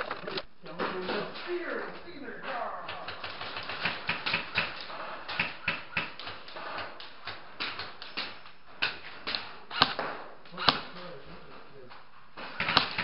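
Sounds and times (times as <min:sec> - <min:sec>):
sharp clicks and taps: 0:02.9 - 0:10.8.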